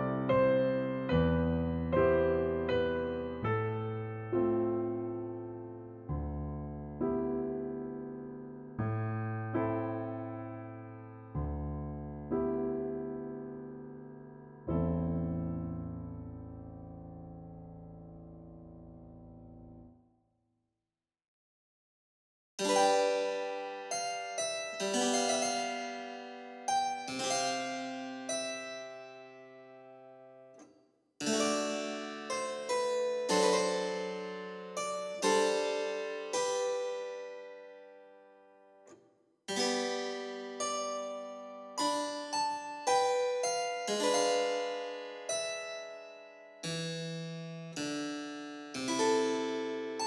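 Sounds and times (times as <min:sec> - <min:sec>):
keyboard playing slow chords: 0:39.5 - 0:50.0.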